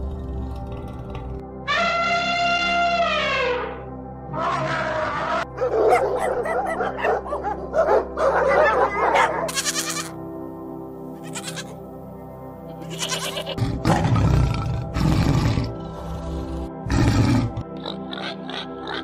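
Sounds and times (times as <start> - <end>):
tiger growling: 0.0 - 1.5, 13.6 - 18.8
background music: 0.0 - 19.0
goats bleating: 9.5 - 10.2, 11.2 - 11.8, 12.8 - 13.6.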